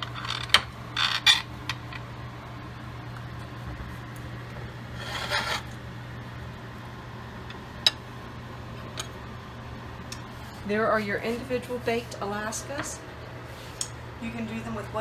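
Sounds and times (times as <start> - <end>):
steady low hum: 0.0 - 15.0
knife scraping: 4.9 - 5.8.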